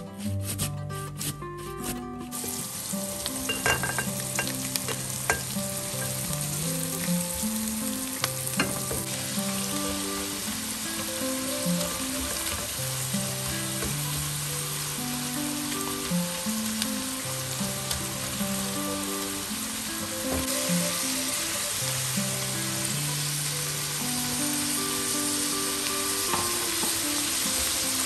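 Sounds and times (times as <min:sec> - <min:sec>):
potato rasping on grater: 0:00.0 - 0:02.5
meat and onions sizzling: 0:01.2 - 0:28.0.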